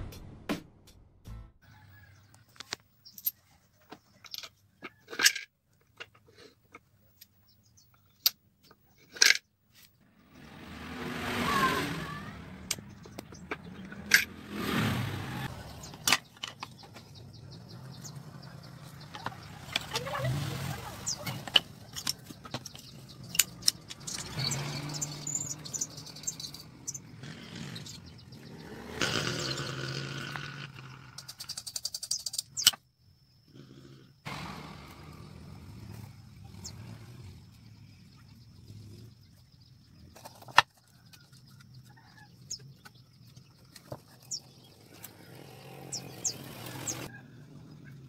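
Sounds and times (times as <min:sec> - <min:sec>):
birds chirping: 0:06.4 - 0:08.2, 0:09.4 - 0:48.0
engine humming: 0:10.0 - 0:31.3, 0:34.2 - 0:48.0.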